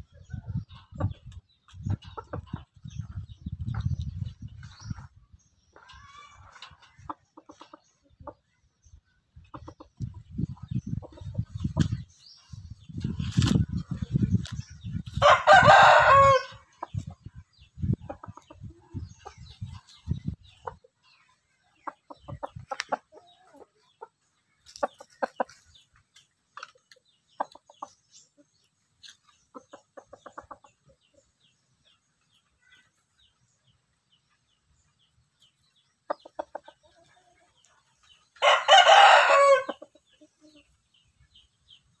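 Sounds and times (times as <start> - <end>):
soft clucks: 5.7 - 8.6, 18.0 - 25.7
rooster crowing: 15.2 - 16.6, 38.4 - 39.7.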